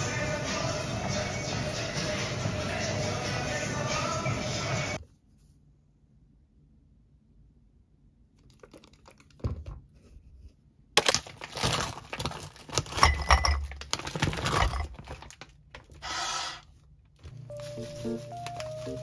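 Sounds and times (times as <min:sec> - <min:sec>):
plastic bag crinkling: 0:11.0 - 0:16.0, 0:17.5 - 0:19.0.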